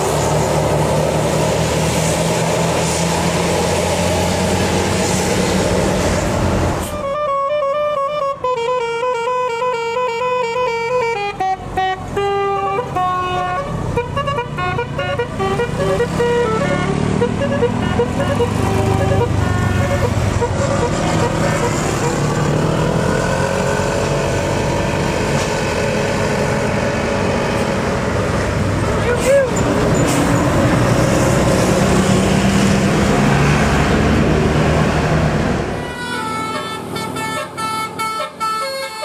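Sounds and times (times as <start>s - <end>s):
road traffic and engines: 0.0s - 39.0s
melodic bus horn tune: 6.8s - 22.4s, 35.7s - 39.0s.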